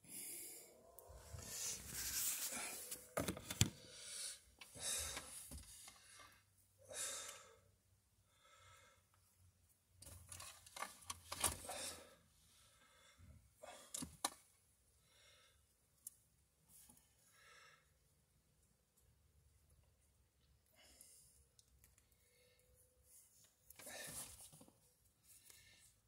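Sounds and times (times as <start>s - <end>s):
person breathing: 0.0s - 9.2s, 11.6s - 14.0s, 15.0s - 15.7s, 17.2s - 18.0s.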